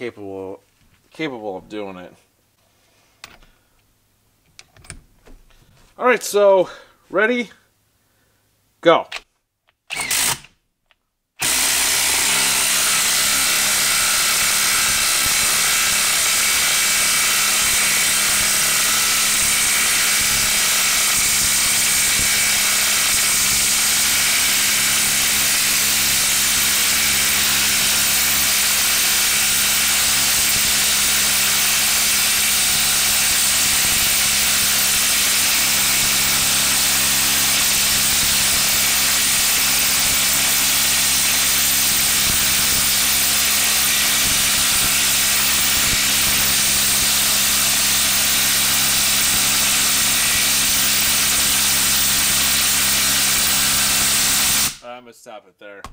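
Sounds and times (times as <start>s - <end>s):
impact driver hammering: 11.4s - 54.8s.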